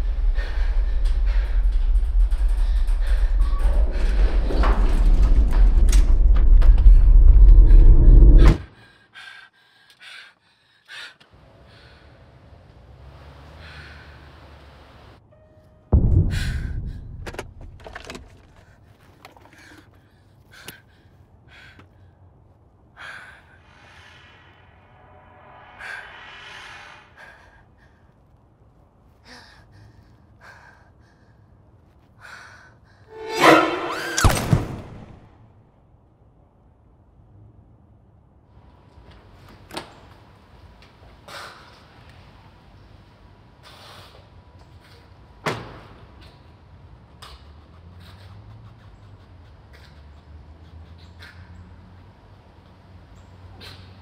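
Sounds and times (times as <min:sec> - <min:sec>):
woman breathing heavily: 0:00.0 - 0:04.5, 0:06.8 - 0:12.4, 0:16.2 - 0:33.2
loud low rumble: 0:00.0 - 0:08.6, 0:15.9 - 0:18.8, 0:23.6 - 0:28.1.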